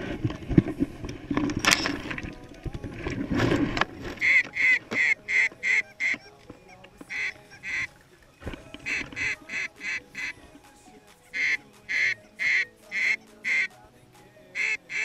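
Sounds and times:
geese honking: 3.8s - 15.0s.

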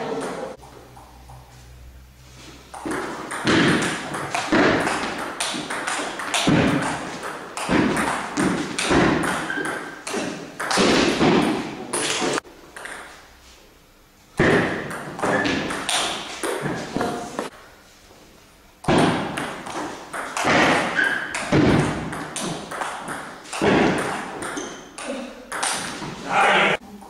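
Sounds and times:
table tennis ball knocking: 2.7s - 13.2s, 18.8s - 26.1s.

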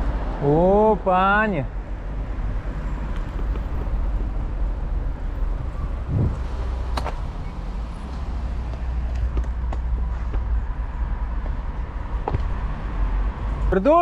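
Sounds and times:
wind rumbling on microphone: 3.2s - 7.4s.

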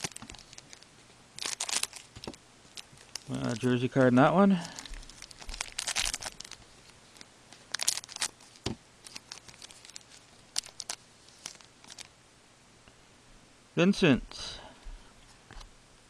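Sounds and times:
foil wrapper crinkling and tearing: 0.0s - 12.1s.

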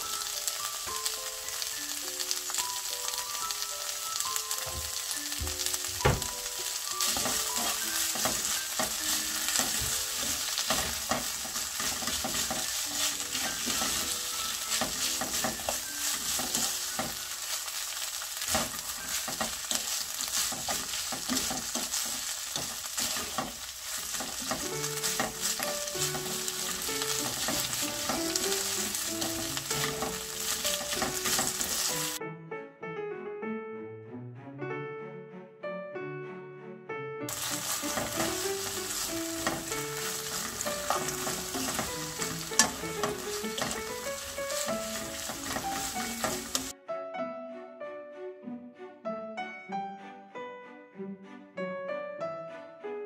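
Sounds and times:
vegetables sizzling in a frying pan: 0.0s - 32.2s, 37.3s - 46.7s
wooden spoons scraping a pan: 5.6s - 32.2s, 37.3s - 46.7s.

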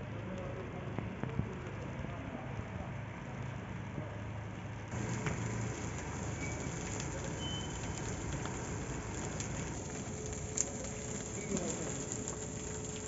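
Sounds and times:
bonfire hissing and crackling: 0.1s - 13.0s
sharp fire pop: 4.9s - 13.0s.

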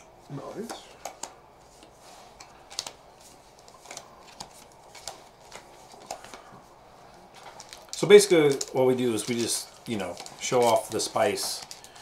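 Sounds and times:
cards clicking and swishing: 0.6s - 6.5s.

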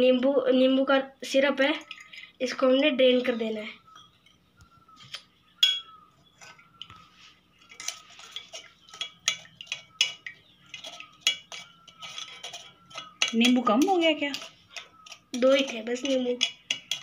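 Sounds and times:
spoon scraping metal strainer: 6.2s - 17.0s.

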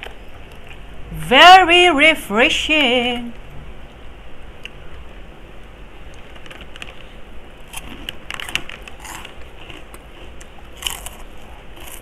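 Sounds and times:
crunchy food being chewed: 6.2s - 12.0s.

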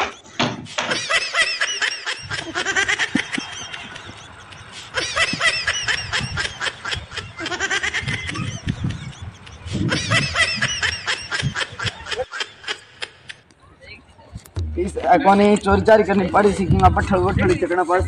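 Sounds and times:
high-pitched giggling: 0.9s - 13.5s.

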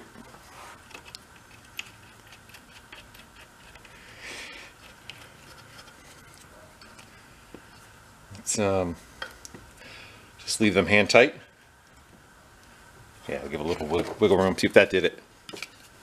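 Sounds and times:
small metallic clicks and scrapes: 0.2s - 4.0s, 4.7s - 7.2s.

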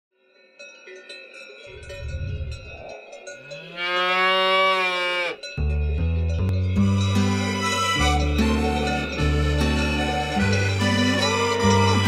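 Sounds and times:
bells tinkling: 0.2s - 12.0s
cow mooing: 3.5s - 5.5s.

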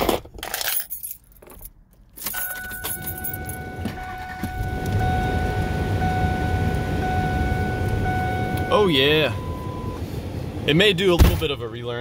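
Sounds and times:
keys jingling: 0.0s - 4.4s
steady high tone: 2.4s - 10.0s
truck engine idling: 3.0s - 11.2s.

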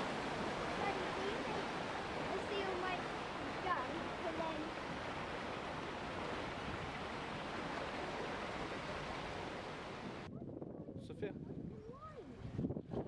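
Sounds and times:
churning foaming water rushing: 0.0s - 10.3s.

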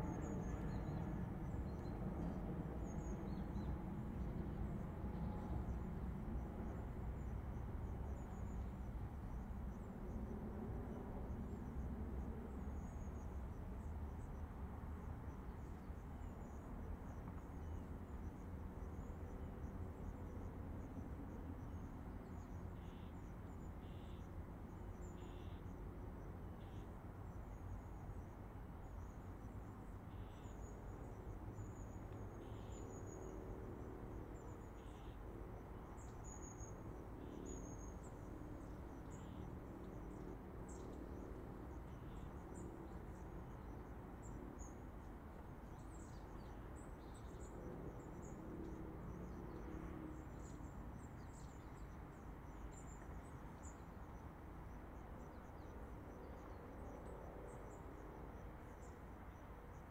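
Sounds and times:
distant highway traffic rumble: 0.0s - 59.9s
insects calling: 35.8s - 40.9s.

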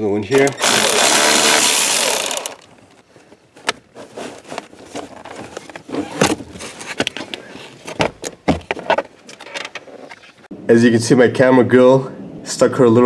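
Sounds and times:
power driver whirring: 0.3s - 2.7s
tools clicking and knocking: 0.3s - 2.7s.

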